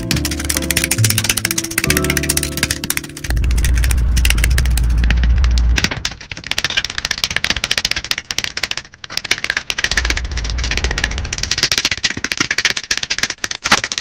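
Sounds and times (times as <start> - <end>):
deep low tone: 0.0 - 5.8
plastic parts clicking and rattling: 0.0 - 14.0.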